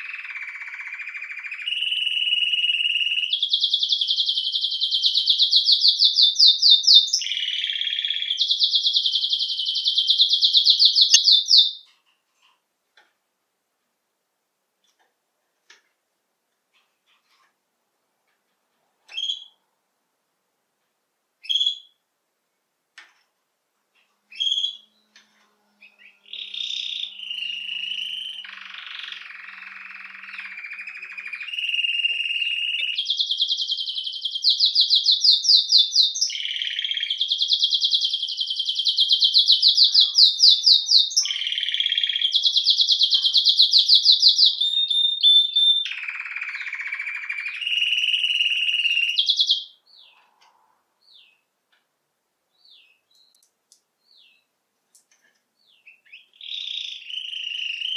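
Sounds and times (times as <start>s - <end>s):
canary singing trills: 0.0s - 11.9s, 24.3s - 25.2s, 25.8s - 50.4s, 55.6s - 57.9s
faint bird chirps: 0.0s - 12.0s, 24.3s - 51.5s, 55.6s - 57.9s.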